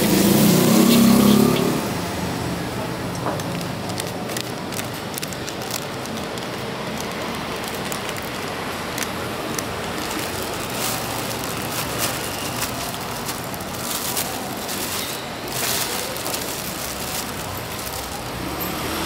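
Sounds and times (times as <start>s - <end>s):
food sizzling in a wok: 0.0s - 1.8s.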